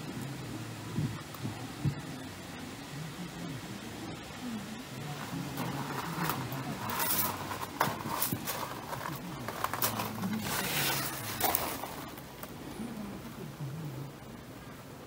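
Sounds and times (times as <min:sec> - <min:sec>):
tent fabric rustling: 0:05.0 - 0:12.6.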